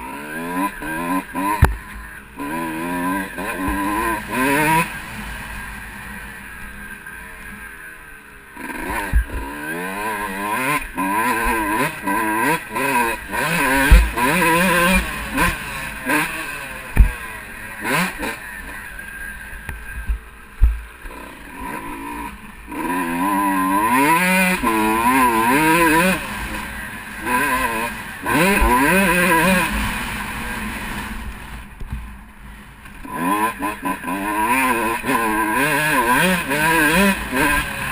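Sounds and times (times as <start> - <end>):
two-stroke engine revving: 0.0 - 7.8, 8.5 - 37.9
sharp low thumps: 17.0 - 17.2.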